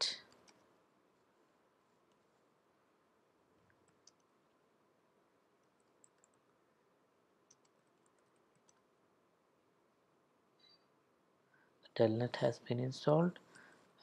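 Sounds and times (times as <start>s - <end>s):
faint keyboard clicks: 0.1s - 0.7s, 3.6s - 4.4s, 5.6s - 6.6s, 7.4s - 8.9s.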